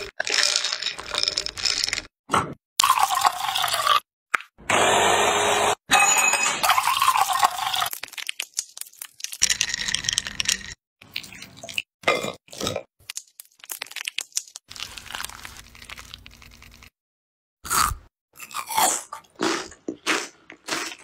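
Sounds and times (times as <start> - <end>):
crunching vegetable being cut: 14.7 - 16.9.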